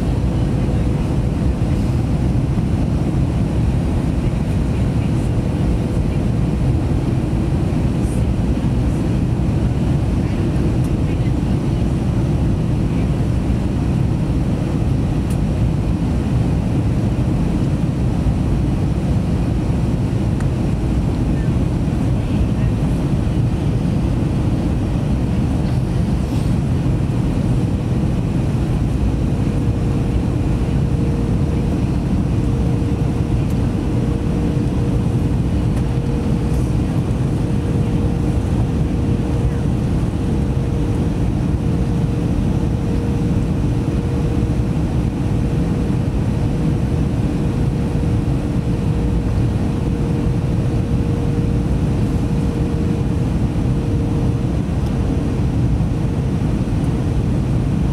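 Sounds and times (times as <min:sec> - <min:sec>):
aircraft cabin roar: 0:00.0 - 0:57.9
jet engines: 0:00.0 - 0:57.9.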